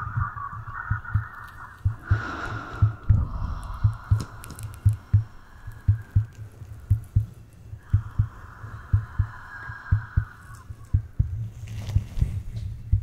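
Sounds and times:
heartbeat thumping: 0:00.0 - 0:13.0.

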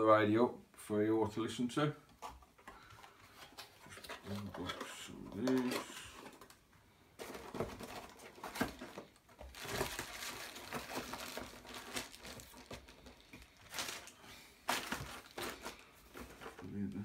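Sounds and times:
cardboard and plastic rustling: 0:02.2 - 0:17.0.

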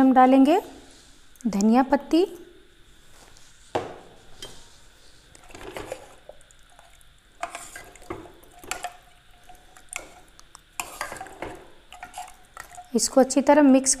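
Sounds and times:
ladle stirring thick curry: 0:04.4 - 0:12.9
ladle knocking and scraping pot: 0:05.4 - 0:06.4, 0:07.4 - 0:12.9.

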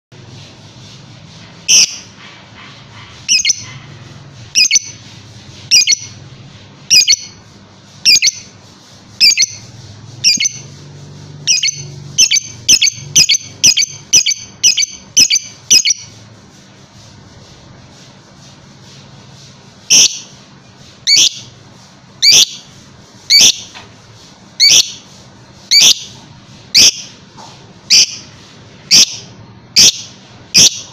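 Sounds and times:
bird chirping shrilly: 0:01.7 - 0:02.1, 0:03.2 - 0:03.7, 0:04.5 - 0:05.0, 0:05.7 - 0:06.2, 0:06.9 - 0:07.4, 0:08.0 - 0:08.6, 0:09.2 - 0:10.8, 0:11.4 - 0:16.1, 0:19.9 - 0:20.3, 0:21.0 - 0:21.6, 0:22.2 - 0:22.7, 0:23.3 - 0:23.7, 0:24.6 - 0:25.1, 0:25.7 - 0:26.2, 0:26.8 - 0:27.2, 0:27.9 - 0:28.3, 0:28.9 - 0:30.9.

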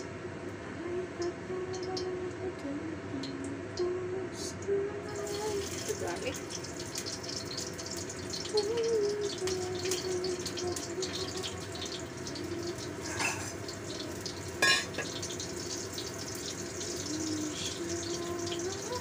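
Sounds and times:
garlic sizzling in oil: 0:05.1 - 0:19.0.

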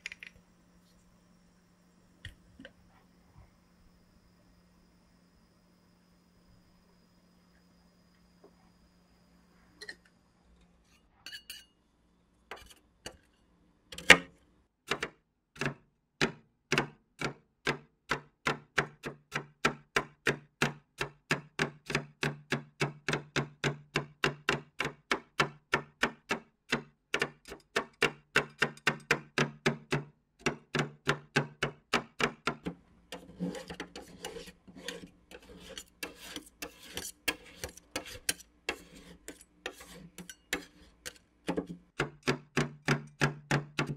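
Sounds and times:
spatulas scraping frozen mix: 0:12.5 - 0:13.4, 0:33.1 - 0:42.0.

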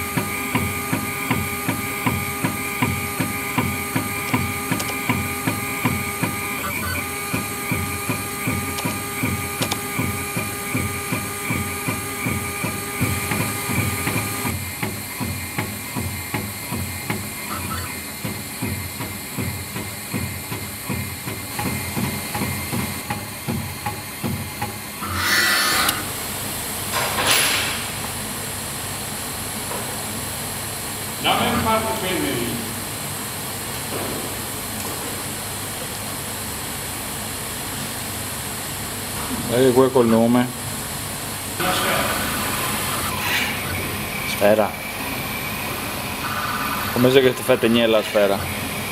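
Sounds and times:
engraving machine knocking: 0:00.0 - 0:26.1
high steady whine: 0:17.4 - 0:18.6.

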